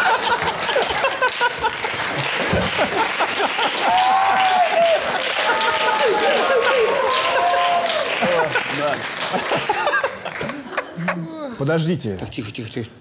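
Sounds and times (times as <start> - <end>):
audience clapping: 0.0 - 11.2
people laughing: 0.0 - 11.6.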